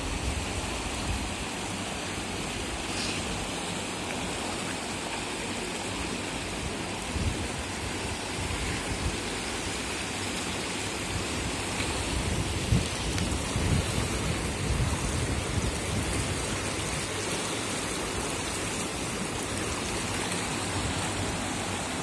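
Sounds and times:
river water rushing over weir: 0.0 - 22.0.

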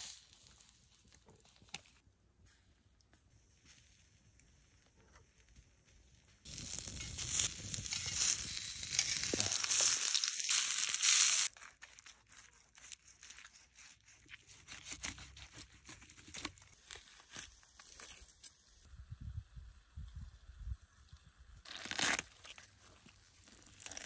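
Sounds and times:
crisp skin crackling as carved: 6.4 - 18.7, 21.6 - 24.0
potato slices sizzling: 6.5 - 11.6.

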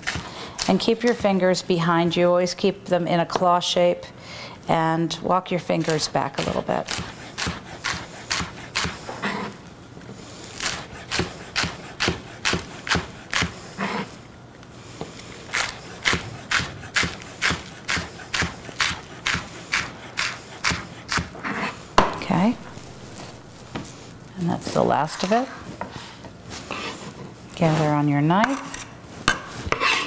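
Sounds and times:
knife slicing on cutting board: 29.5 - 30.0.

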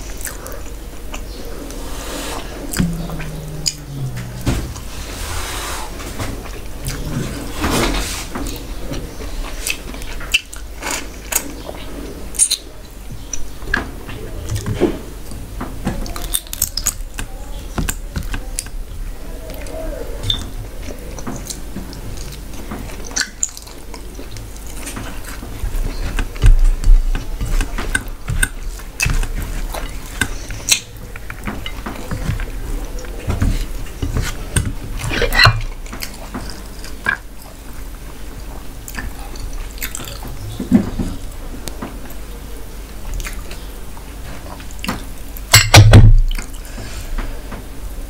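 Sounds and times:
wet chewing smacks: 38.9 - 40.4.

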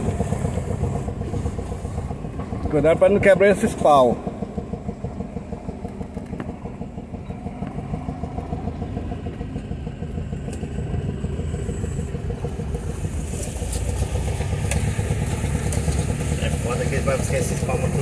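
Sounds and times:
vehicle engine driving slowly: 0.0 - 18.0.

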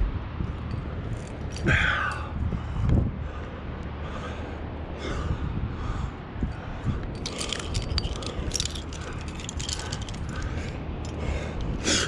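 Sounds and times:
climbing hardware clinking: 0.6 - 2.2, 7.0 - 11.3
person breathing hard: 1.7 - 12.0.

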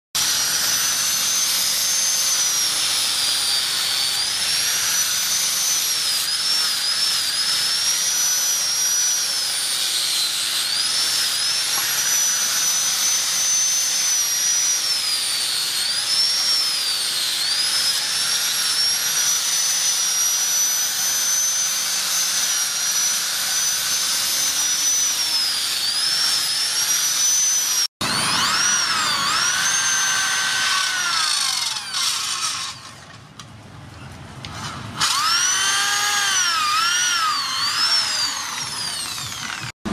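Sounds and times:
angle grinder sanding wood: 0.2 - 33.0, 35.0 - 39.9
electric drill boring into wood: 0.2 - 33.2, 34.5 - 39.9.

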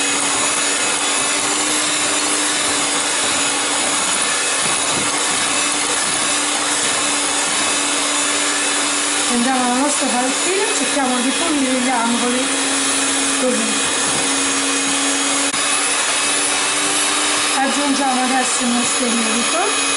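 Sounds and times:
electric hand mixer whisking batter: 0.0 - 19.9.

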